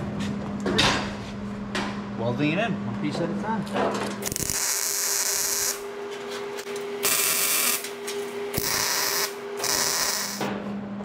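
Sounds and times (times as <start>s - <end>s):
steady hum: 0.0s - 11.0s
welder sizzling crackle: 4.3s - 5.8s, 7.0s - 7.9s, 8.6s - 10.4s.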